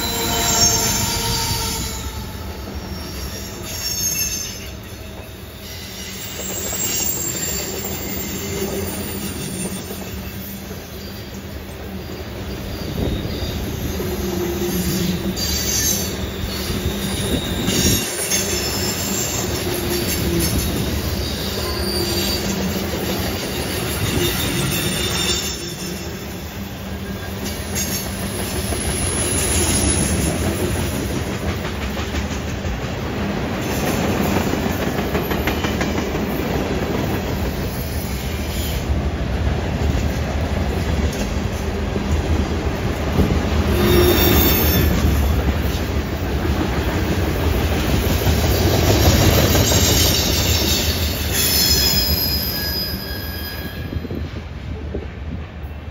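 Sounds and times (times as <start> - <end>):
high-pitched wheel squeal: 0.0 - 11.4, 12.6 - 22.8, 23.5 - 28.0, 28.7 - 30.4, 43.7 - 45.2, 48.4 - 54.2
train wheels rumbling on rails: 0.0 - 55.9.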